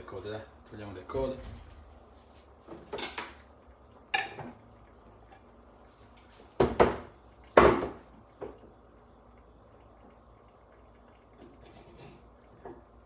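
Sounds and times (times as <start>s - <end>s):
kitchenware clinking: 2.7s - 3.5s, 4.1s - 4.6s, 11.4s - 12.7s.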